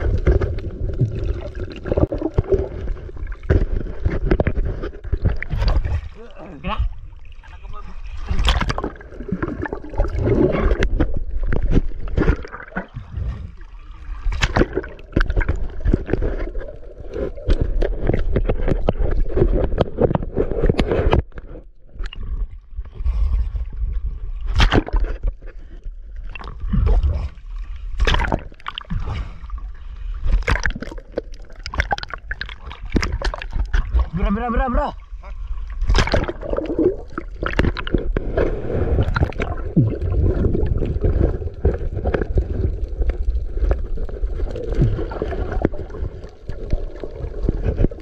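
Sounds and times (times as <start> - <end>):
seawater splashing and sloshing: 0.0 - 21.1, 22.0 - 48.0
sharp splashes or knocks: 8.2 - 13.5, 14.2 - 16.3, 24.5 - 25.2, 28.0 - 29.2, 30.3 - 34.1, 35.8 - 38.3.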